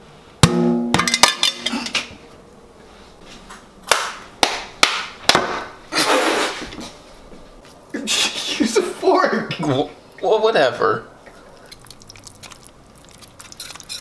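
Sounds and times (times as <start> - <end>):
metallic clang: 0.4 - 2.1.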